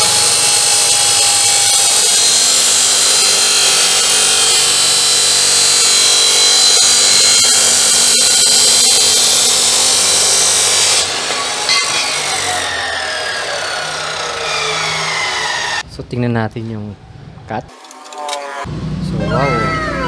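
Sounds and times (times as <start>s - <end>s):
abrasive saw grinding steel: 0.0s - 15.8s.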